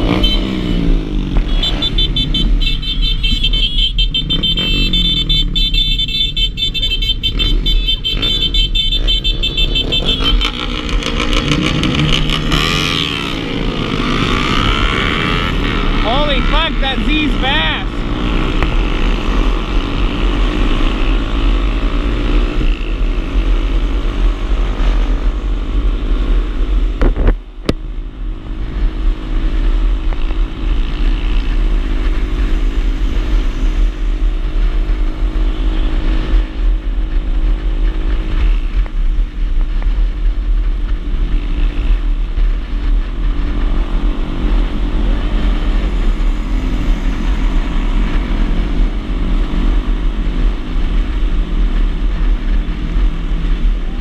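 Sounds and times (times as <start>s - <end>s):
small motorcycle engine running: 43.4s - 51.1s.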